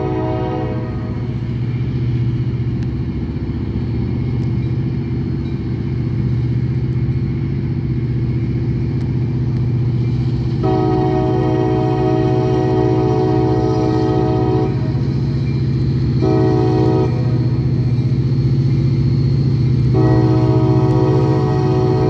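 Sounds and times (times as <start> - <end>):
locomotive air horn chord: 0.0 - 1.4, 10.6 - 15.0, 16.2 - 17.6, 19.9 - 22.0
diesel locomotive engine drone: 0.0 - 22.0.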